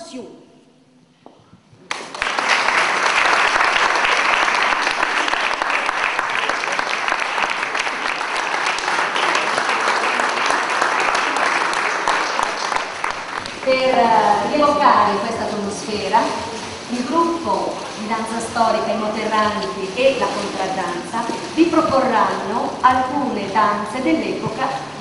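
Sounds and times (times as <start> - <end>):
audience applauding: 1.8 - 14.6.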